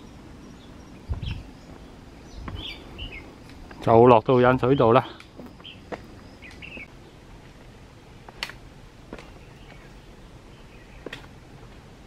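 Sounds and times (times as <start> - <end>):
bird chirp: 0.0 - 7.3, 9.2 - 11.2
footsteps on concrete: 1.7 - 2.8, 5.4 - 7.6.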